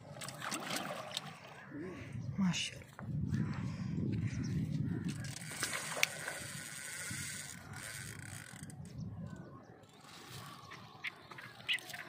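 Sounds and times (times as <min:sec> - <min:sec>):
fishing reel whirring and clicking: 0:05.0 - 0:09.0.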